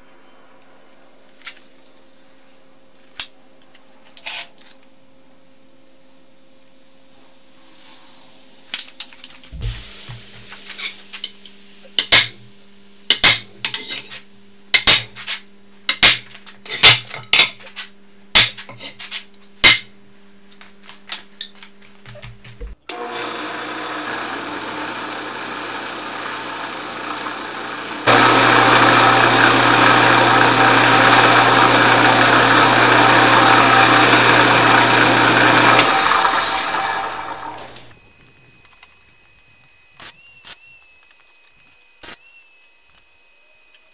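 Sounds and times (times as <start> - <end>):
drill press motor running: 22.8 - 38.0
drill bit drilling into steel: 22.9 - 38.0.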